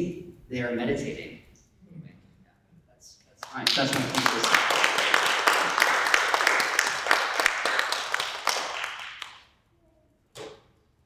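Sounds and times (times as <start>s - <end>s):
audience applauding: 3.4s - 9.5s.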